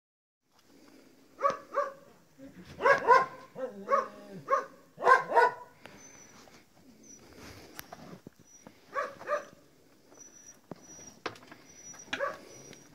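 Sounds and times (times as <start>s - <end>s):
dog barking: 1.4s - 2.1s, 2.8s - 5.8s, 8.9s - 9.6s, 12.2s - 12.6s.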